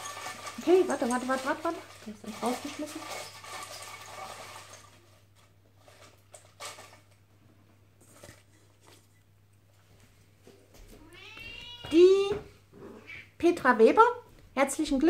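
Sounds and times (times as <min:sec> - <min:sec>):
paper rustling against steel bowl: 0:00.0 - 0:07.2.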